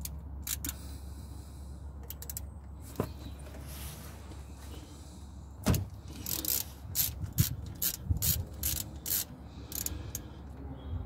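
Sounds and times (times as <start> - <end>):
socket ratchet clicking: 0.0 - 0.8, 6.2 - 9.9.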